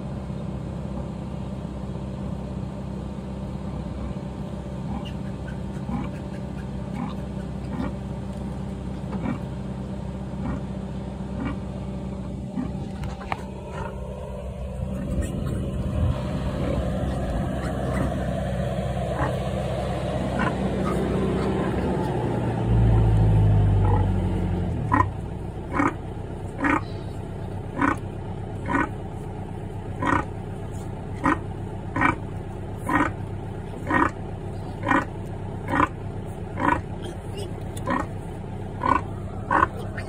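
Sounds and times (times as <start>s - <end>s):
low rumble: 3.4s - 40.0s
sow grunting: 4.8s - 8.1s, 8.9s - 9.6s, 10.3s - 11.7s, 12.4s - 29.0s, 30.0s - 33.2s, 33.8s - 40.0s.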